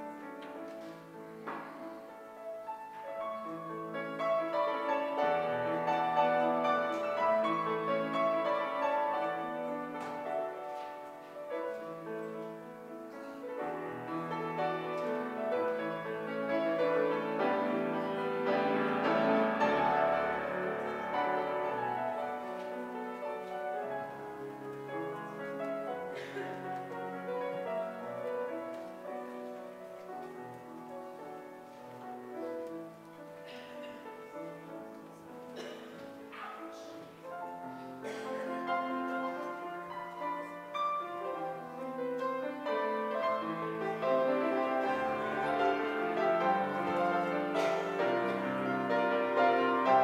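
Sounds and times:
slow keyboard chords: 0.0 - 31.2.

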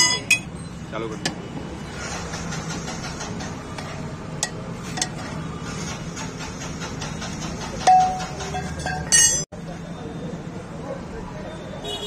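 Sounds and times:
tools clinking on metal: 0.0 - 0.5, 7.8 - 9.5
ringing metal clank: 7.8 - 9.5.

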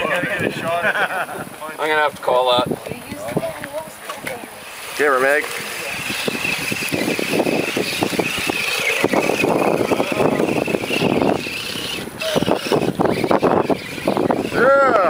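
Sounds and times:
toy car motor whining: 4.6 - 15.0.

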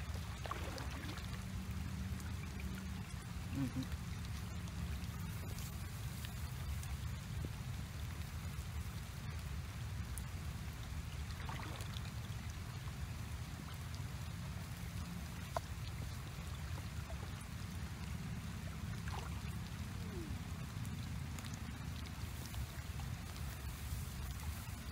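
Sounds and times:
constant low rumble: 0.0 - 24.9
running water: 0.0 - 24.9
faint ticks: 2.2 - 11.0, 14.6 - 18.2.

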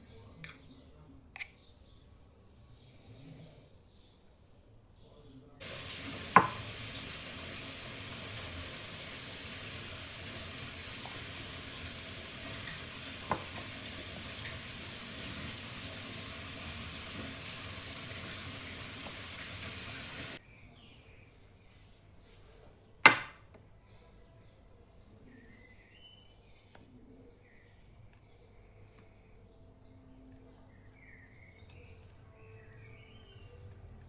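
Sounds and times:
steady hiss: 5.6 - 20.4.

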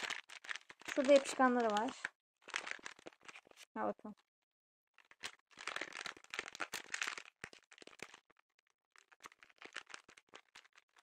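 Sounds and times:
plastic bootie crinkling: 0.0 - 3.7, 5.0 - 11.0.

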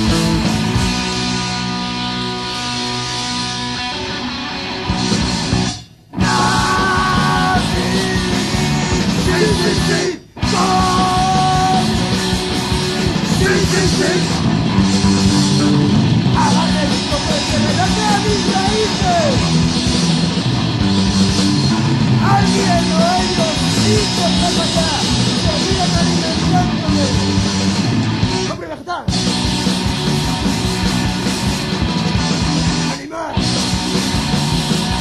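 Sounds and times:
distorted electric guitar: 0.0 - 35.0
drums: 0.0 - 35.0
punk rock band playing: 0.0 - 35.0
vocals: 6.2 - 12.0, 13.0 - 14.5, 16.3 - 19.4, 22.2 - 27.3, 28.4 - 29.2, 32.8 - 33.5.

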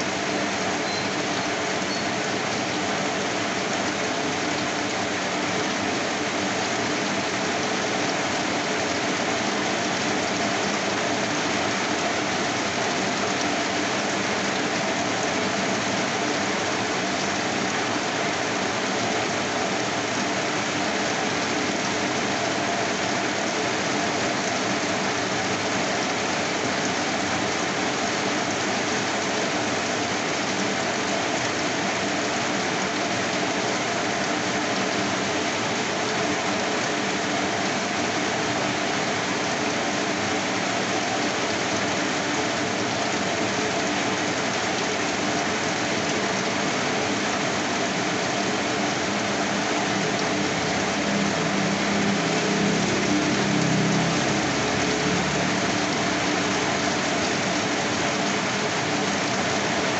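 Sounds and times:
rain splashing on wet street: 0.0 - 59.9.

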